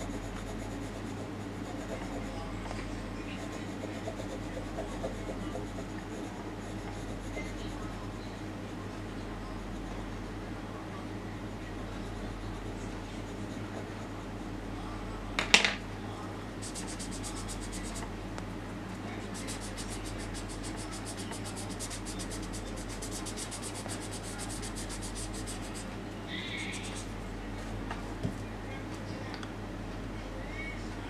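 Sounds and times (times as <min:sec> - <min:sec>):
pencil scratching on paper: 0:00.0 - 0:10.1, 0:11.9 - 0:14.6, 0:16.6 - 0:18.1, 0:19.2 - 0:27.1
steady low hum: 0:00.0 - 0:31.0.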